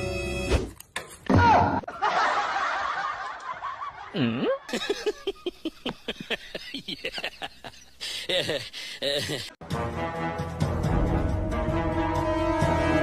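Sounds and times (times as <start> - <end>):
people laughing: 1.9 - 9.6.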